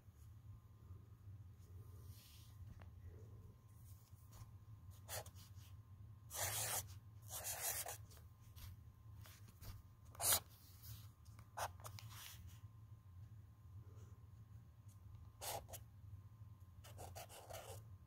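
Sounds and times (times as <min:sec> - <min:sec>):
low steady hum: 0:00.0 - 0:18.0
marker writing on paper: 0:05.0 - 0:05.5, 0:06.3 - 0:08.1, 0:10.1 - 0:10.5, 0:15.4 - 0:15.8, 0:16.8 - 0:17.8.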